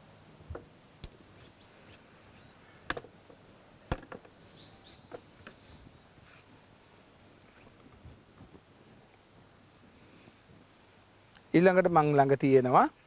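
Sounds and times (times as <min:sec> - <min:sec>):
faint bird chirps: 0:03.4 - 0:06.4.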